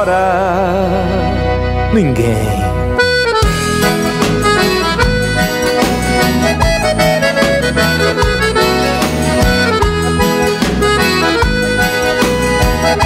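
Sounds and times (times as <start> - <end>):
instrumental music with drum beat: 3.0 - 13.0.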